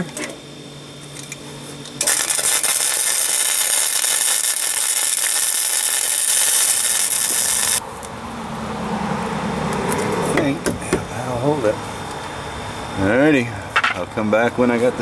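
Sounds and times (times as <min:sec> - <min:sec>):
welder arc crackling and hissing: 0:00.0 - 0:07.8.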